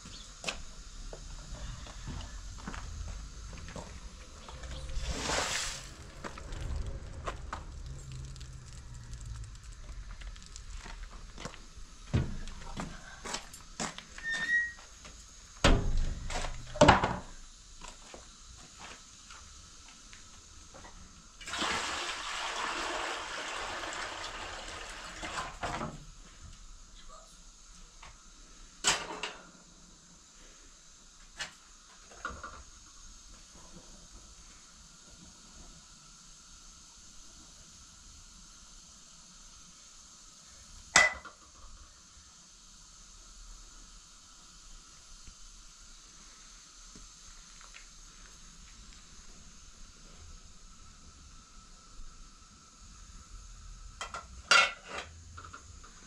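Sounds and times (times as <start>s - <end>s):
water pouring: 4.2s - 11.4s, 21.4s - 25.7s
water splashing from basin: 4.5s - 10.6s, 21.4s - 25.7s.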